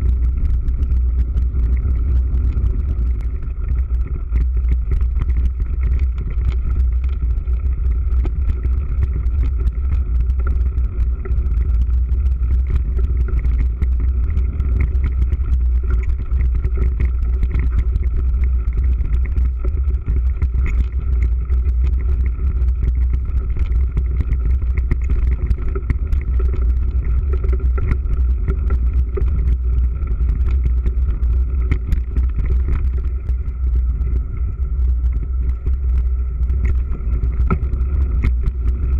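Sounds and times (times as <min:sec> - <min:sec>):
bike tyre noise: 0:00.0 - 0:38.9
wind rumble on microphone: 0:00.0 - 0:38.9.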